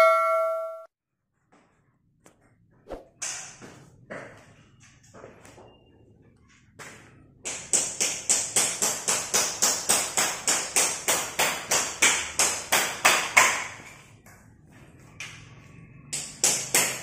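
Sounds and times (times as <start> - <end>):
hammer chipping floor tile: 7.4 - 13.9.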